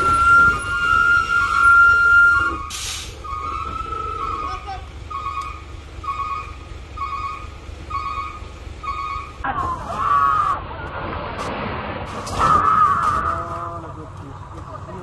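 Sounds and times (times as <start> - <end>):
vehicle noise: 0.0 - 15.0
people shouting: 9.4 - 10.7.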